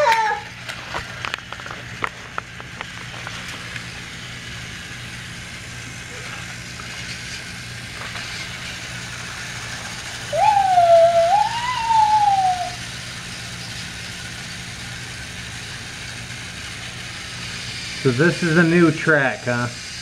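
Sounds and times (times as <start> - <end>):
toy train motors whirring: 0.0 - 20.0
wavering whistle-like tone: 10.2 - 12.9.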